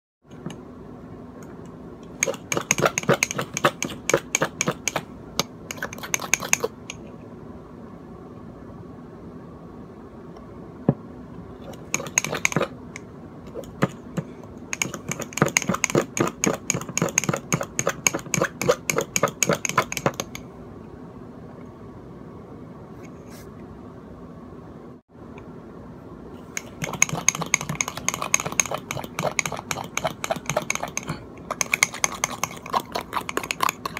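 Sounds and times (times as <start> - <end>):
fork whisking in a ceramic mug: 2.2 - 5.0, 5.7 - 7.0, 11.7 - 12.7, 14.8 - 20.4, 26.5 - 33.9.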